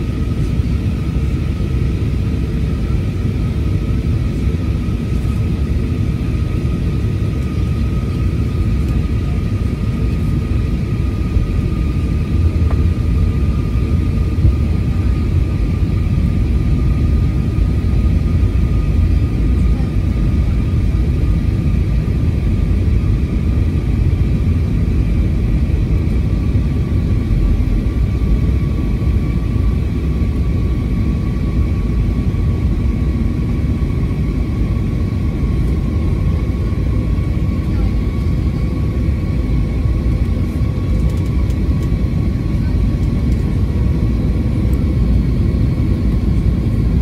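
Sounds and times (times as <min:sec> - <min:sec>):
high jet engine whine: 0:00.0 - 0:47.0
low rumble of airflow and engines: 0:00.0 - 0:47.0.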